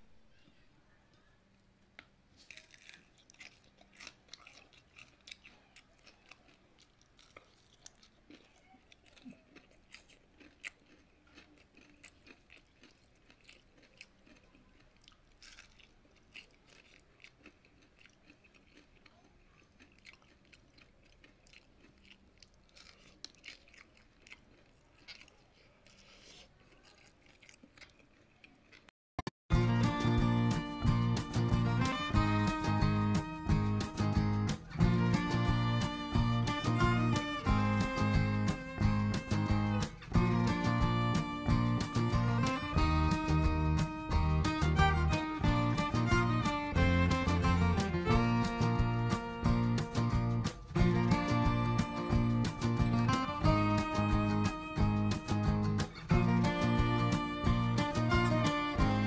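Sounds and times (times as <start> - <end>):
crunchy fritter being chewed: 2.3 - 28.9.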